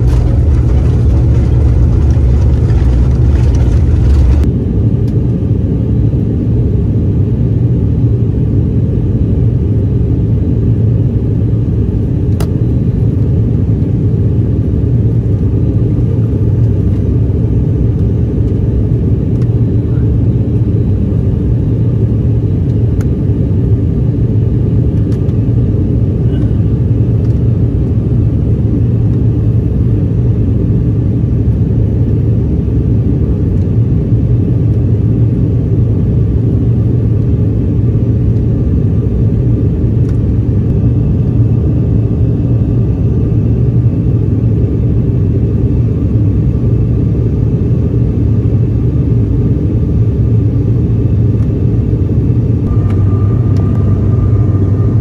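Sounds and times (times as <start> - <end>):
rushing air: 0.0 - 4.5, 52.6 - 55.0
airliner engines rumbling: 0.0 - 55.0.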